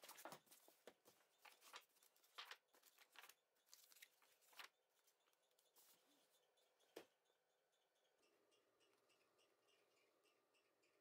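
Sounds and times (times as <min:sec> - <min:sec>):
pages turning: 0:00.0 - 0:04.8.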